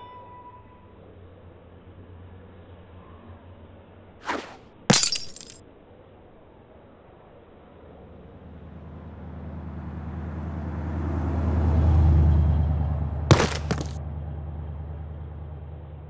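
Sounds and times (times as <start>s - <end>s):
truck engine driving past: 8.2s - 13.3s, 13.9s - 16.0s
clatter of sharp knocks: 13.3s - 14.0s.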